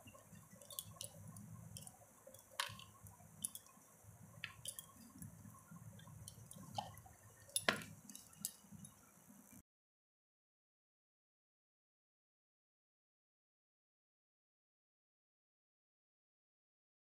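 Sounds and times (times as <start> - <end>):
slices dropping onto steel plate: 7.5 - 8.6.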